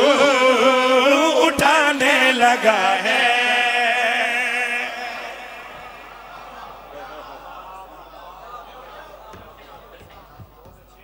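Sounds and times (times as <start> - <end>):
men singing devotional song: 0.0 - 7.7.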